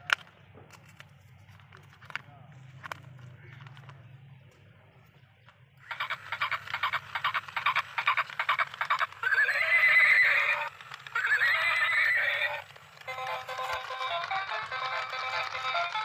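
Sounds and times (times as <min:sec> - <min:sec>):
toy clip-clop hoofbeats: 0:05.8 - 0:16.0
toy horse whinnies: 0:05.8 - 0:16.0.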